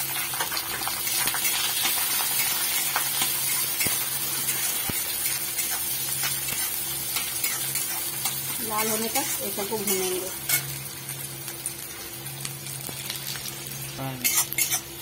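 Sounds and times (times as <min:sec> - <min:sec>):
onions sizzling in oil: 0:00.0 - 0:15.0
spatula scraping a pan: 0:14.2 - 0:14.9.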